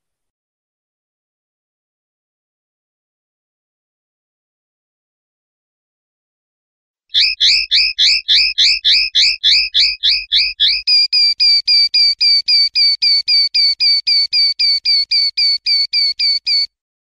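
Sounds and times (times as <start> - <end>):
linnet song: 7.1 - 16.7.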